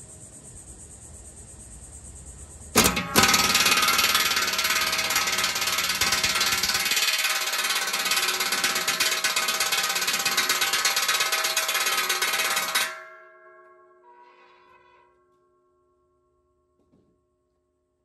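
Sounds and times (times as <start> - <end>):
impact wrench hammering on bolt: 2.8 - 13.0
steel deck ringing: 2.8 - 15.3.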